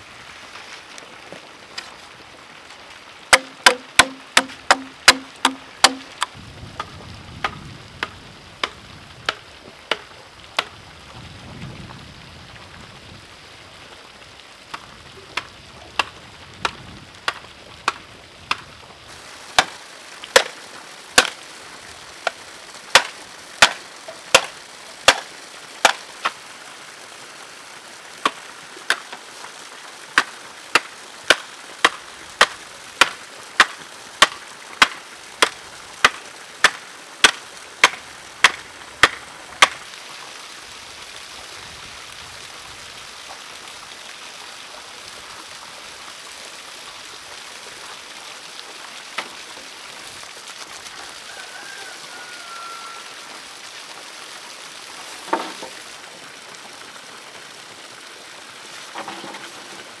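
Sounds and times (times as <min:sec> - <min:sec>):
water splashing from a pipe: 0:00.0 - 1:00.0
stone knocking on bamboo stake: 0:03.3 - 0:10.7, 0:20.4 - 0:20.6, 0:22.2 - 0:24.5, 0:36.0 - 0:39.8, 0:55.2 - 0:55.8.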